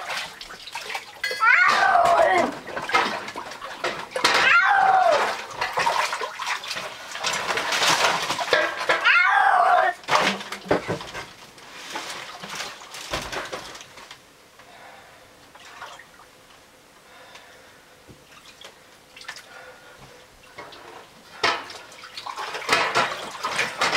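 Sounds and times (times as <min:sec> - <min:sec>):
cat yowling: 0:01.4 - 0:02.6, 0:04.4 - 0:05.4, 0:09.0 - 0:10.0.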